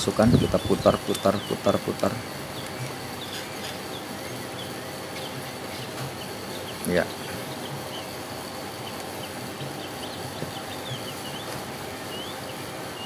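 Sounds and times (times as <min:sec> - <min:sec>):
background hiss: 0:00.0 - 0:13.0
small birds chirping: 0:00.0 - 0:13.0.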